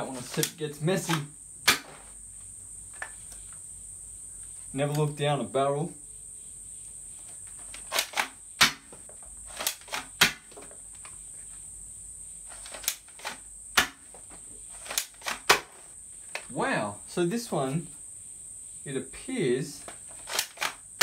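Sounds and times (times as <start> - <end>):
toy blaster clacking and firing: 7.7 - 8.8, 9.5 - 10.5, 20.1 - 20.8.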